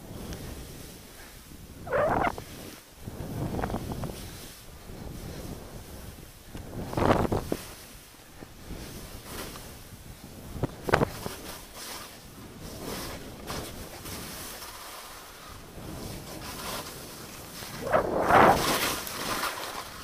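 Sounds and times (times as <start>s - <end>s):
wind buffeting microphone: 1.5s - 7.7s, 15.6s - 19.4s
skis hissing through snow: 11.1s - 20.0s.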